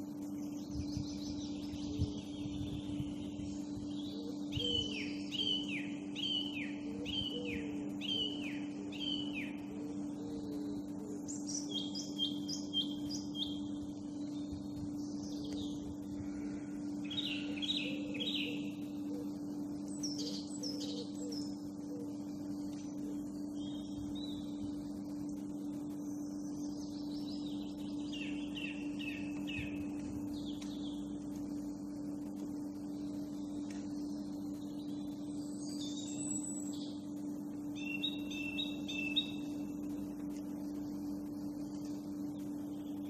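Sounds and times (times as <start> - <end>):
songbird down-slurred notes: 0.0 - 43.0
steady low hum: 0.0 - 43.0
songbird whistled notes: 4.1 - 9.6, 37.8 - 39.5.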